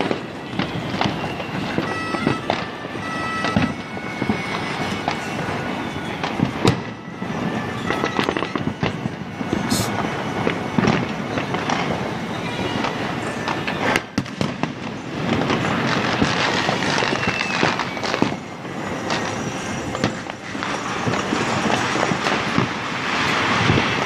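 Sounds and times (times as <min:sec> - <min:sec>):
firecrackers and fireworks crackling: 0:00.0 - 0:24.0
sharp firework cracks: 0:00.0 - 0:24.0.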